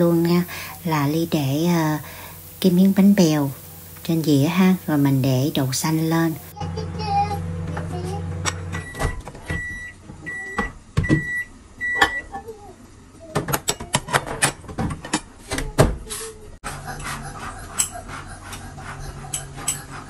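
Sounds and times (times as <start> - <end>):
kitchen appliance hum: 0.0 - 10.4.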